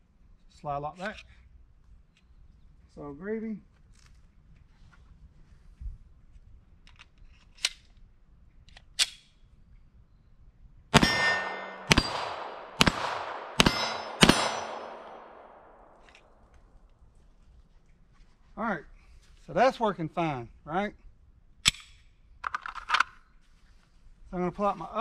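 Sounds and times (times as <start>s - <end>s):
pistol shots: 11.0s - 16.1s
metallic handling clicks: 21.6s - 23.2s.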